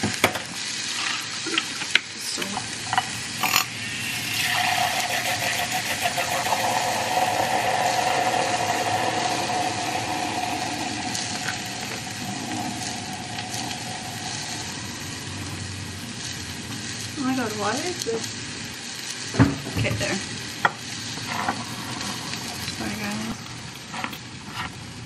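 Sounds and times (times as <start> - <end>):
milk frother whirring: 3.4 - 17.5, 20.6 - 24.2
milk churning: 3.8 - 15.6.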